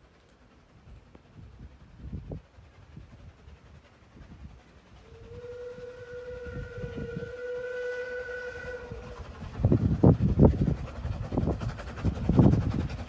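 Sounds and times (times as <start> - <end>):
low train rumble: 0.0 - 13.0
steam locomotive whistle: 4.9 - 9.7.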